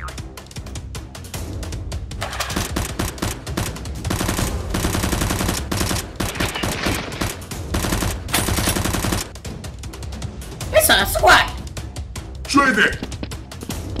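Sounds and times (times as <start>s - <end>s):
automatic gunfire bursts: 2.5s - 9.3s.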